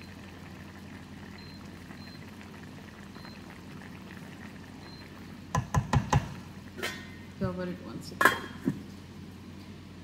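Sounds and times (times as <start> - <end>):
curry bubbling in a pan: 0.0 - 7.3
low steady hum: 0.0 - 10.0.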